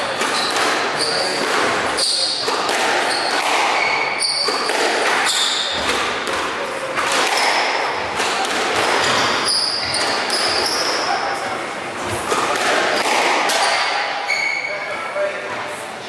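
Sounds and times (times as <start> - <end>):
squash ball hits: 0.0 - 10.9, 12.0 - 14.2
shoes squeaking on wooden floor: 2.0 - 5.9, 9.0 - 11.1, 14.2 - 14.9.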